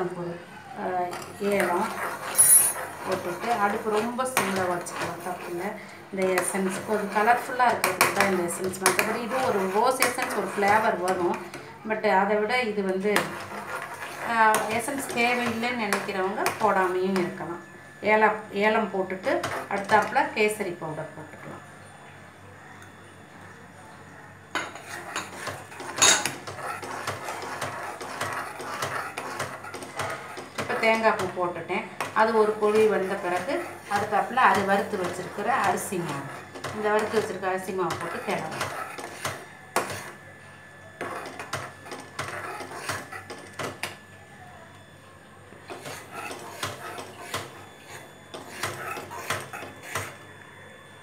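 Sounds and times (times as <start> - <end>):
metal ladle scraping a metal pan: 1.1 - 5.6
steel spoon scraping metal pot: 1.1 - 5.7, 24.6 - 31.0.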